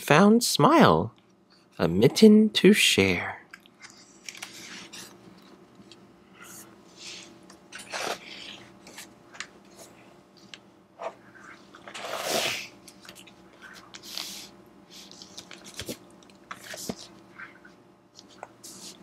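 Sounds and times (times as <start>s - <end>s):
book pages turning and rustling: 3.8s - 11.2s, 15.0s - 19.0s.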